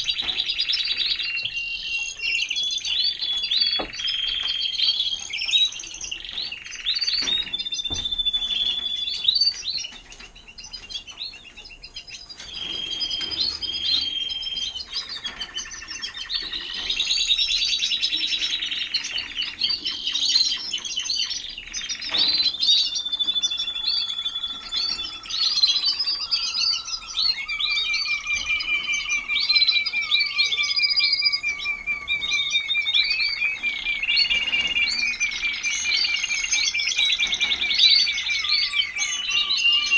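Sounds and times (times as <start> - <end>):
canaries singing: 0.0 - 39.9.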